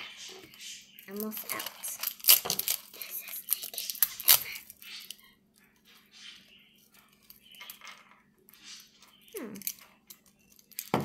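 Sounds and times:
plastic wrapping crinkling: 1.1 - 5.3.

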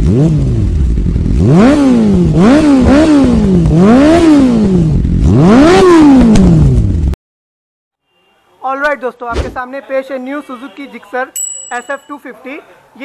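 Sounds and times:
motorcycle engine revving: 0.0 - 7.2.

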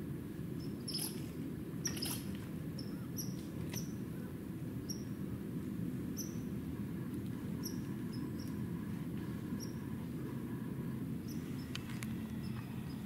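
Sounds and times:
small animal chirping: 0.6 - 1.2, 1.8 - 4.0, 7.6 - 8.6.

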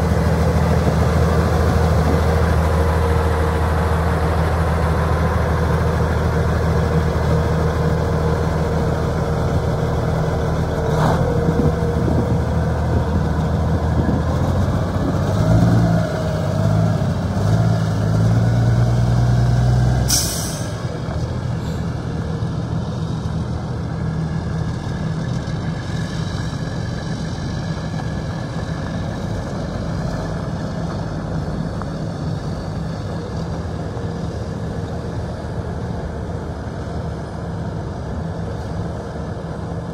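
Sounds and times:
diesel truck engine running: 0.0 - 39.9
air brakes hiss: 20.1 - 20.9.

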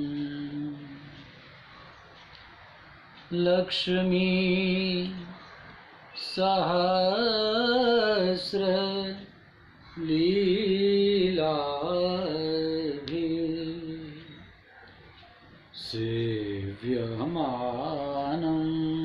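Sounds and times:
man chanting: 0.0 - 1.2, 3.3 - 5.4, 6.2 - 9.4, 10.0 - 14.5, 15.8 - 19.0.

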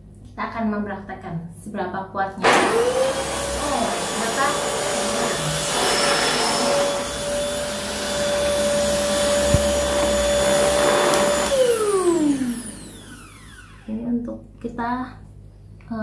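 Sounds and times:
vacuum cleaner motor whine: 2.4 - 14.0.

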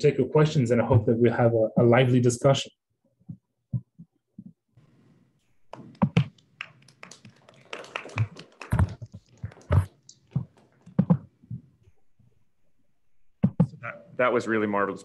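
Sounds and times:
irregular taps and knocks: 3.2 - 4.6, 5.6 - 7.6, 8.2 - 11.8, 13.4 - 13.8
dull thumps: 5.7 - 6.3, 8.7 - 11.7, 13.4 - 13.8.

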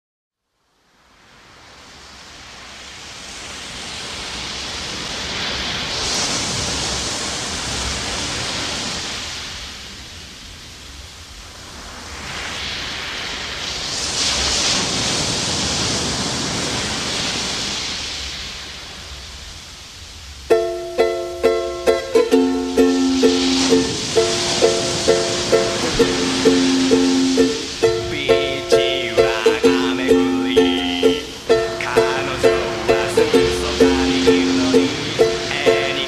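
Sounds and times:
hissing wash of noise: 0.8 - 36.0
plucked ukulele notes: 20.5 - 36.0.

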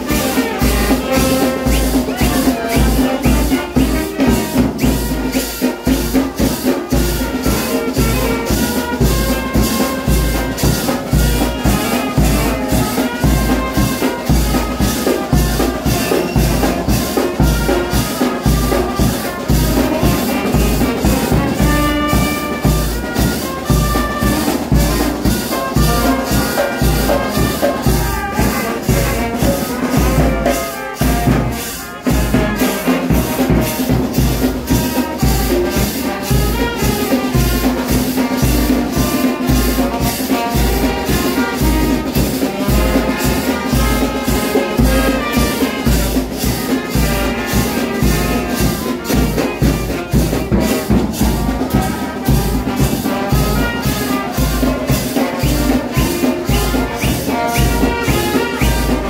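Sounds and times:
bass drum: 0.0 - 59.0
brass band playing: 0.0 - 59.0
snare drum: 0.0 - 59.0
trumpets melody: 0.0 - 59.0
hand shakers: 45.5 - 59.0.

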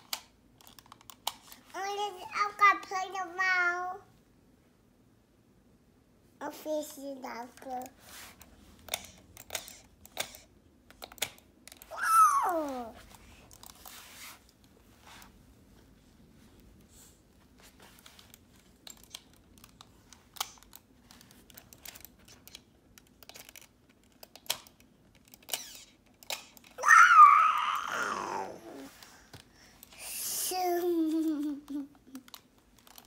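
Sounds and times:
toddler vocalizing: 26.8 - 28.9.

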